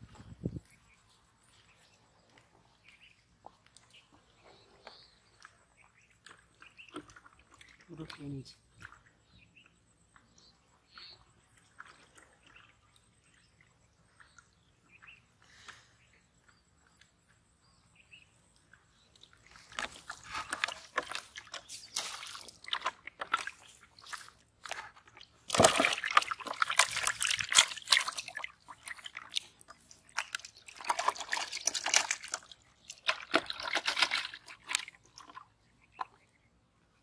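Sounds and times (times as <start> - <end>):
eels splashing in water: 19.3 - 36.2.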